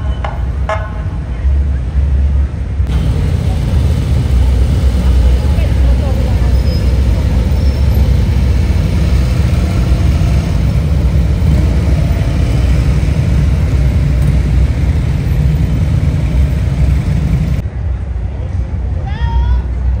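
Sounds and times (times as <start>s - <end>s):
motorcycle engines droning: 2.8s - 17.6s.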